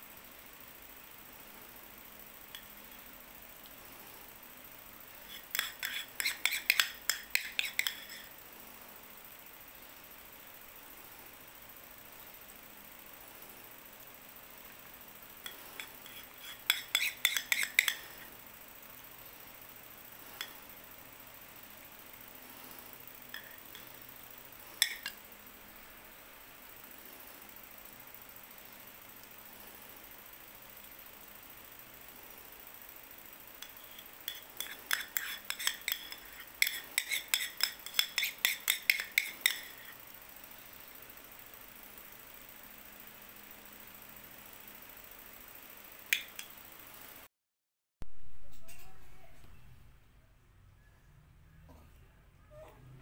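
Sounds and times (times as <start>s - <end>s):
metal spoon clinking on bowl: 5.4s - 8.2s, 15.5s - 18.1s, 24.8s - 25.2s, 33.6s - 39.9s.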